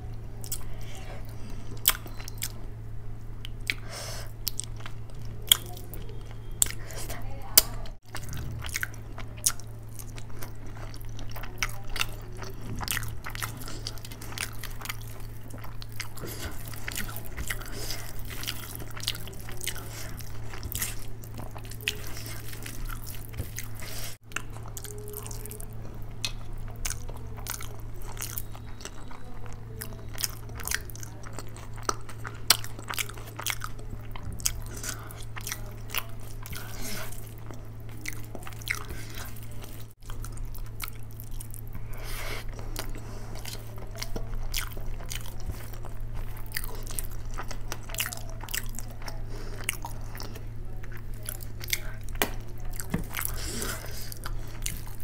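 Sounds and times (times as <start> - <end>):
person chewing with wet smacking: 0.0 - 55.0
steady low hum: 0.0 - 55.0.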